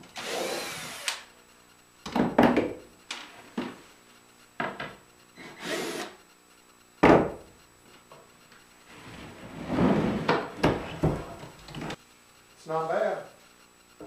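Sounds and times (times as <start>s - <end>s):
cordless drill running: 0.1s - 1.3s, 5.6s - 6.2s
wooden boards knocking and rubbing: 10.2s - 12.0s.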